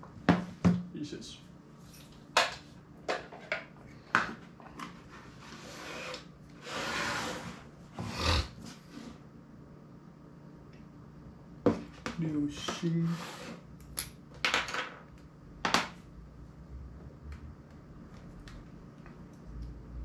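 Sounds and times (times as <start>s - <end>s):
rustling scrapes: 4.9s - 9.2s.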